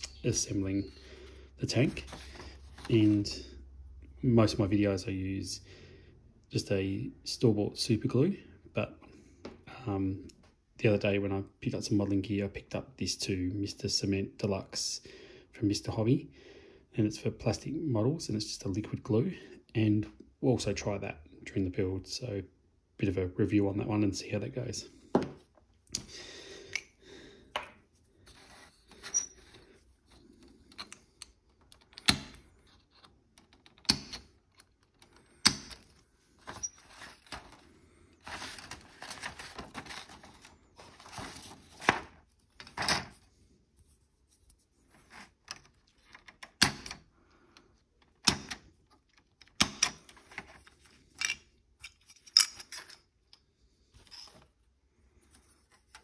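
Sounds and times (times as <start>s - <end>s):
plastic frames clicking and clacking: 28.9s - 40.4s, 45.1s - 51.5s
plastic rattling and rustling: 31.5s - 43.2s.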